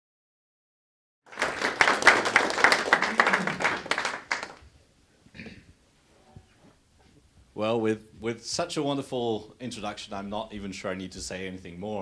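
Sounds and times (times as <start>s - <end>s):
audience applauding: 1.3s - 4.6s.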